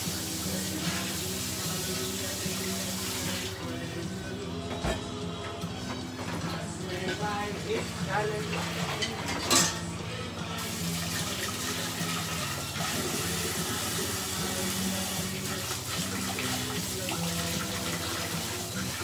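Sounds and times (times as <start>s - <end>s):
tap water running into sink: 0.0s - 3.7s, 10.6s - 19.0s
gospel music: 0.0s - 19.0s.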